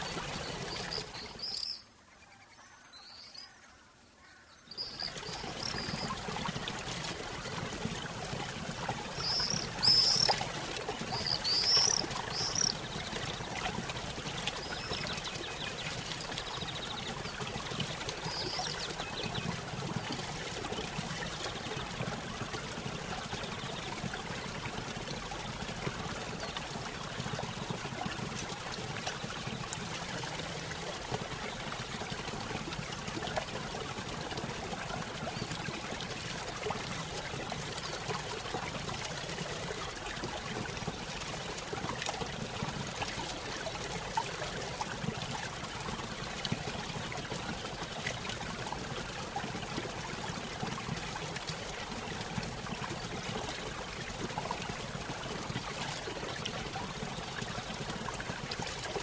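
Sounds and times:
songbird chirping: 0:00.0 - 0:06.1, 0:09.2 - 0:10.4, 0:11.1 - 0:13.6.

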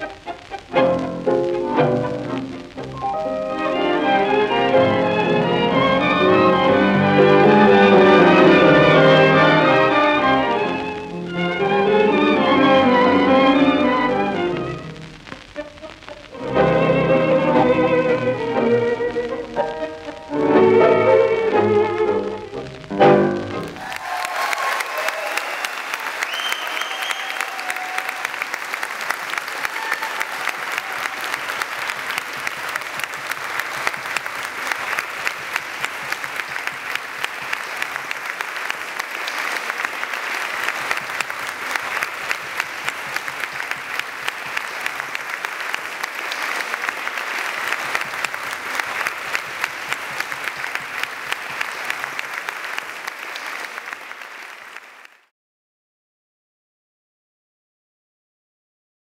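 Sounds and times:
audience applauding: 0:00.0 - 0:55.3.

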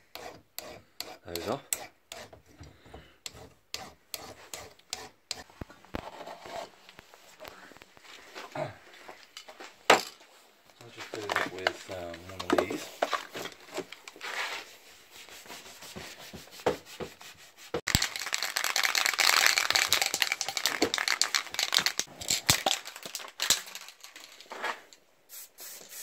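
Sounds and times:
spray can ball rattling: 0:17.9 - 0:24.5, 0:25.3 - 0:26.0.

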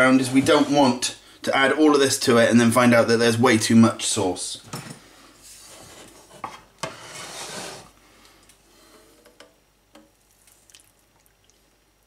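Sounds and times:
pots rubbing and scraping: 0:00.0 - 0:01.0, 0:05.4 - 0:08.0.

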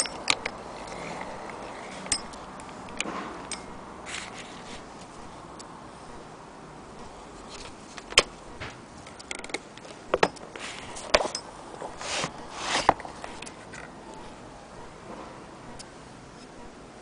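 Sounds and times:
handling clicks and knocks: 0:00.0 - 0:04.4, 0:07.5 - 0:14.0
rubbing swishes: 0:11.8 - 0:13.4.

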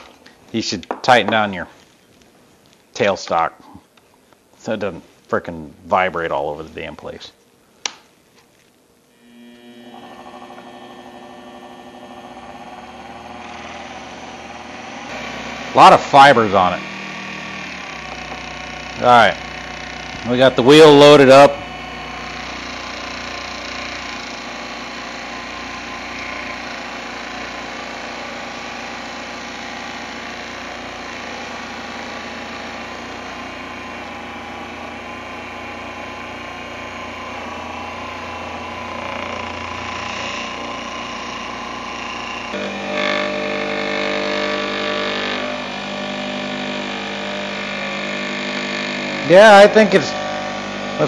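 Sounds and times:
buffing wheel polishing: 0:09.2 - 0:42.8
electric motor running: 0:09.2 - 0:51.0.

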